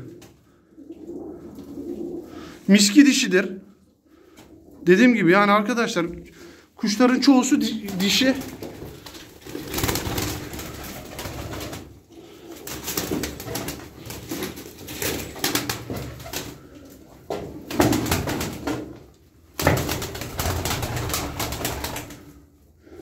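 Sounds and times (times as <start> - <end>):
pigeons cooing: 0.0 - 2.7
wings flapping: 7.7 - 16.8, 17.6 - 19.0, 19.6 - 22.4.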